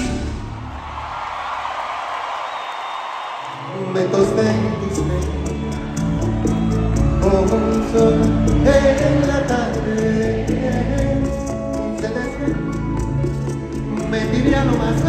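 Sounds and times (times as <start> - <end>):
live band music: 0.0 - 0.6, 4.1 - 15.0
person singing melody: 4.0 - 15.0
held bass notes: 4.8 - 15.0
ticking percussion beat: 4.8 - 15.0.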